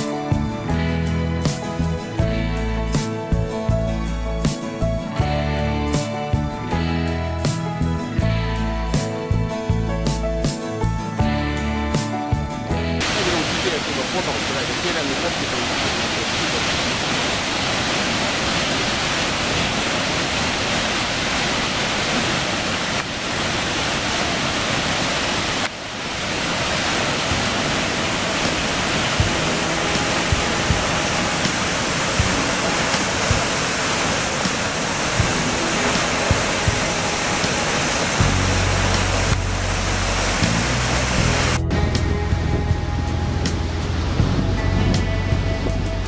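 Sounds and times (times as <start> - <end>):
waterfall rushing: 13.0 - 41.6
low thumps: 38.0 - 46.0.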